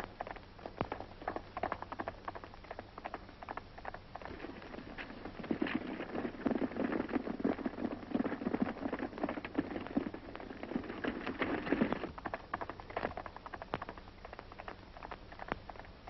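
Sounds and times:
horses galloping: 0.0s - 16.0s.

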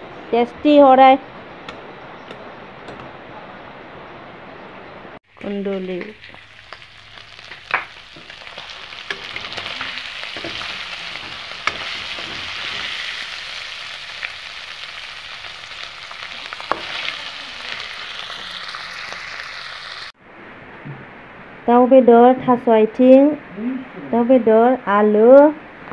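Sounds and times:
food sizzling in hot oil: 5.2s - 20.2s.

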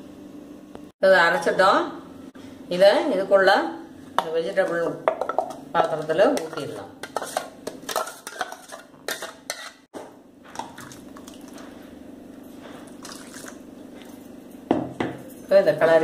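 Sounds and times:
steel spoon scraping grinder jar: 6.4s - 9.9s
liquid pouring into pot: 10.6s - 11.6s, 12.9s - 14.3s.

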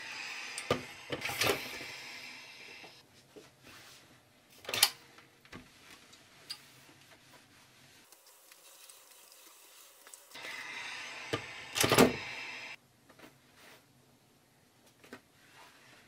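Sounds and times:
steam iron hissing: 0.0s - 3.0s, 10.3s - 12.8s.

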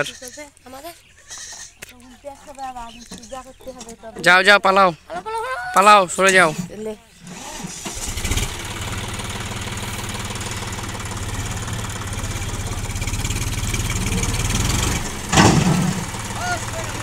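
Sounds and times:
tractor diesel engine under load: 7.2s - 17.0s
loud crash: 15.2s - 16.4s.

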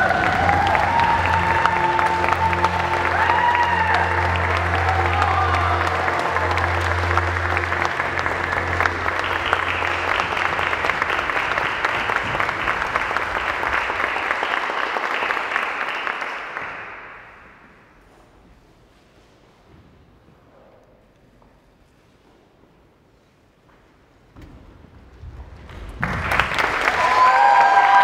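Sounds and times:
audience applauding: 0.0s - 17.6s, 25.6s - 28.0s.

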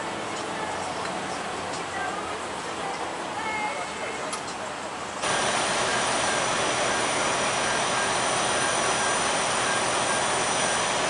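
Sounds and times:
faint high whines: 5.2s - 11.0s
loud mechanical rushing drone: 5.2s - 11.0s.

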